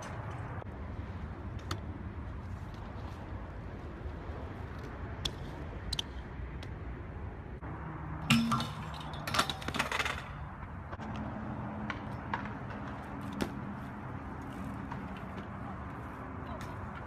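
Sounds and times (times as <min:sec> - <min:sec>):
bike clattering on concrete: 0:08.2 - 0:11.1.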